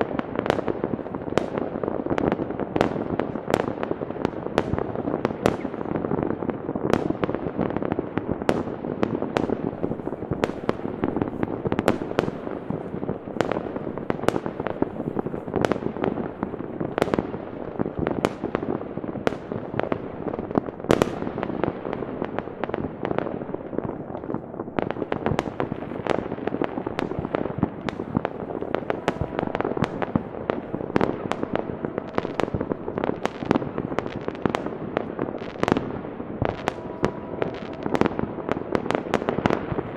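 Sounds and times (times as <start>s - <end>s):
fireworks bangs and crackles: 0.0s - 39.9s
sharp single firework bangs: 25.2s - 39.9s.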